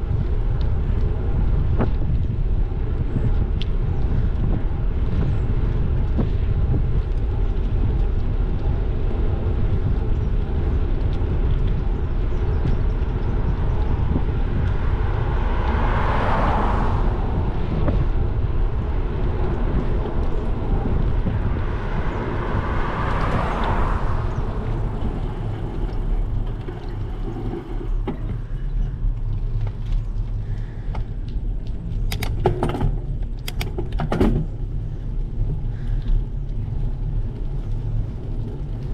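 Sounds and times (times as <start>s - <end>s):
bicycle tyre rumble on asphalt: 0.0s - 38.9s
wind buffeting microphone: 0.0s - 38.9s
cars passing: 10.5s - 32.1s.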